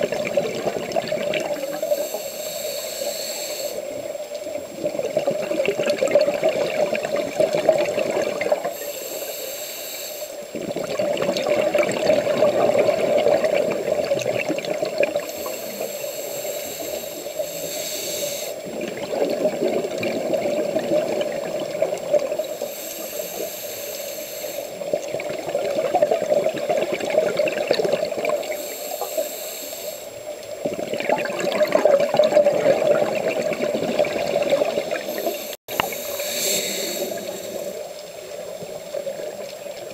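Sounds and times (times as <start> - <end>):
exhaled bubbles underwater: 0.0 - 9.1, 10.4 - 29.2, 30.2 - 39.9
regulator inhalation hiss: 1.4 - 4.6, 8.5 - 10.6, 15.1 - 18.7, 22.3 - 25.0, 28.2 - 30.5, 34.9 - 38.4.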